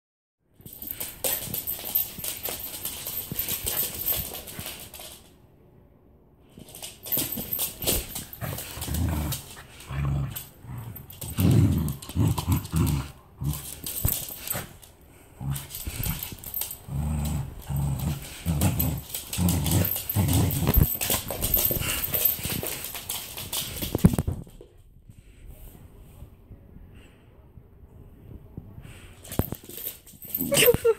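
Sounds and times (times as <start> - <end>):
dog claws clicking on hard floor: 0.6 - 5.3, 6.6 - 14.9, 15.5 - 24.7, 29.2 - 30.9
dog growling: 8.1 - 14.6, 15.3 - 22.2.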